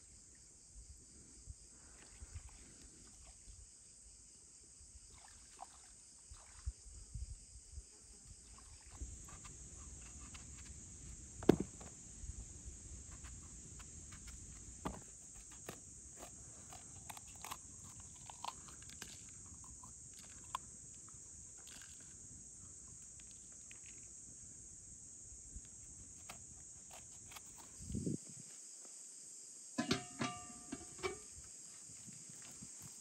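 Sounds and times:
high insect drone: 0:00.0 - 0:33.0
knife cutting vegetables: 0:14.1 - 0:19.2, 0:26.2 - 0:27.8.

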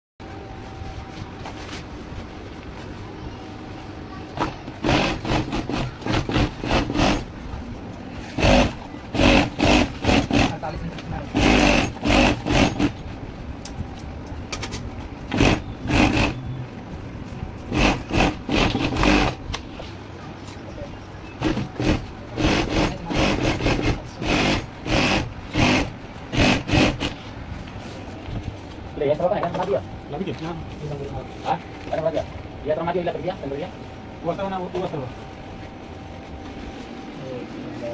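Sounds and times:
sewing machine running: 0:04.4 - 0:07.3, 0:08.4 - 0:10.7, 0:11.3 - 0:13.0, 0:15.3 - 0:16.4, 0:17.7 - 0:19.4, 0:21.4 - 0:27.2.

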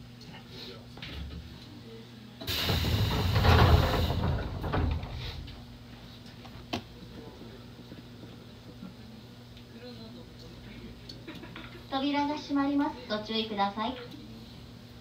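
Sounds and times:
train doors sliding open with air rush: 0:02.4 - 0:05.6.

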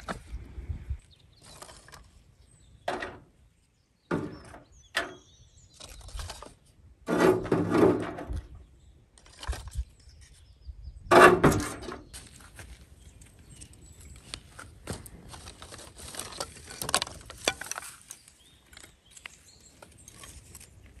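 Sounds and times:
firewood sticks clattering: 0:14.6 - 0:20.9.

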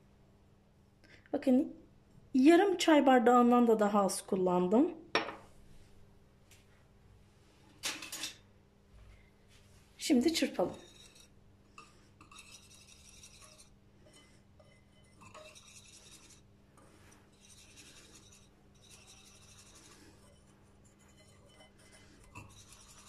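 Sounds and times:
whisk scraping a plate: 0:10.4 - 0:23.0.

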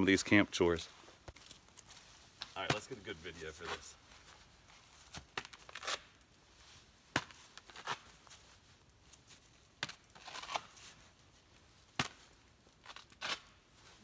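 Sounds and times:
ball smacking velcro pad: 0:05.0 - 0:06.2, 0:07.1 - 0:08.6, 0:09.8 - 0:11.0, 0:11.9 - 0:13.6
velcro ripping: 0:05.1 - 0:06.2, 0:07.5 - 0:08.4, 0:09.9 - 0:11.0, 0:12.8 - 0:13.7.

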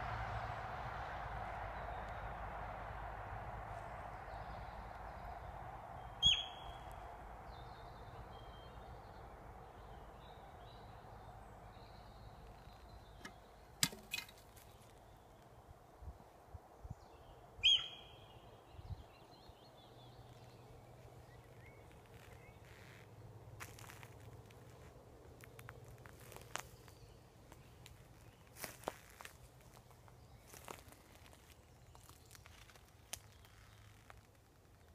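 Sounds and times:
faint birdsong: 0:01.2 - 0:34.9
deer alarm call: 0:06.2 - 0:06.7, 0:17.6 - 0:18.1.

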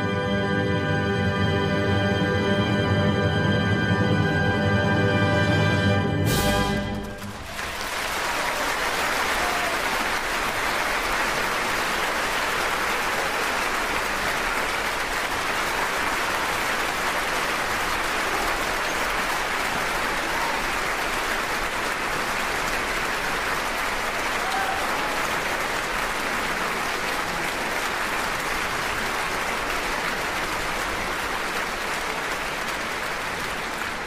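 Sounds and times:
orchestra chord: 0:00.0 - 0:07.4
audience applauding: 0:06.3 - 0:34.0.

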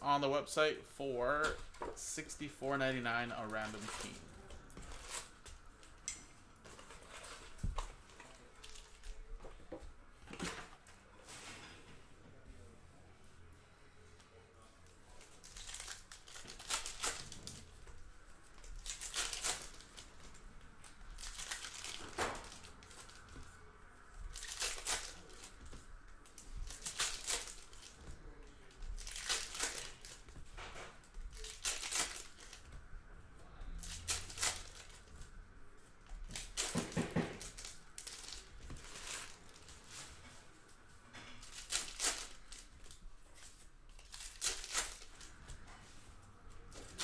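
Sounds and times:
wrappers torn and crinkled: 0:03.4 - 0:06.0, 0:08.2 - 0:09.3, 0:15.1 - 0:17.8, 0:18.4 - 0:23.4, 0:24.3 - 0:28.1, 0:28.9 - 0:30.3, 0:31.3 - 0:32.7, 0:33.8 - 0:35.1, 0:36.2 - 0:40.1, 0:41.4 - 0:45.4.

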